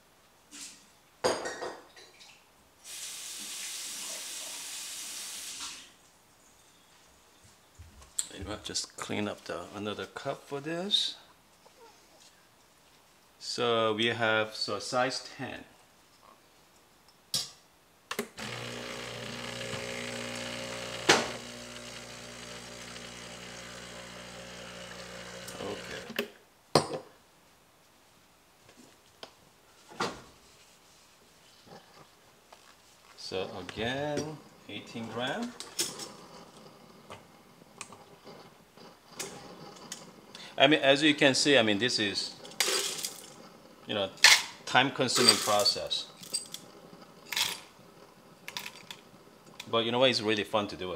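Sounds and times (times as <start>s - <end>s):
espresso machine pump running: 18.4s - 26.2s.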